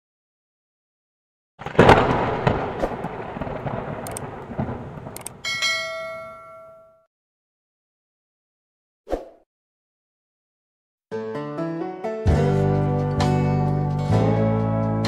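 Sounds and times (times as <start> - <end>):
thunderclap with rumble: 1.6 - 5.5
sharp clicks: 4.0 - 4.4, 5.0 - 5.4
bell chime: 5.4 - 7.1.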